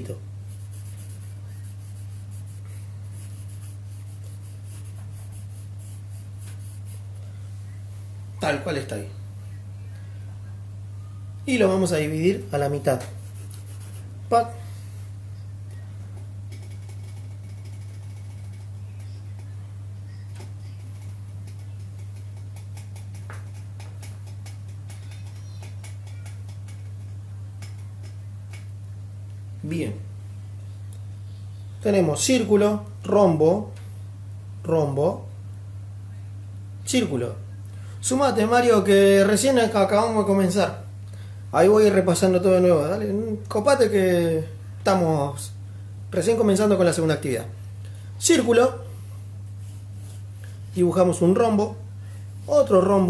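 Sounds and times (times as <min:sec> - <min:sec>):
steady low hum: 0:00.0 - 0:53.0
pencil scratching on paper: 0:00.4 - 0:07.2, 0:12.4 - 0:14.1, 0:16.6 - 0:19.6.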